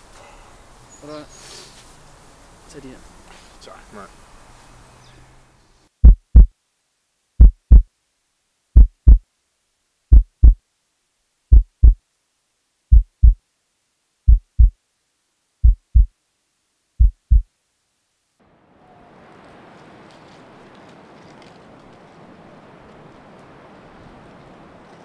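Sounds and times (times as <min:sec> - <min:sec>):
heartbeat thumps: 0:06.0 - 0:06.5, 0:07.4 - 0:07.9, 0:08.8 - 0:09.2, 0:10.1 - 0:10.6, 0:11.5 - 0:12.0, 0:12.9 - 0:13.4, 0:14.3 - 0:14.8, 0:15.6 - 0:16.1, 0:17.0 - 0:17.5.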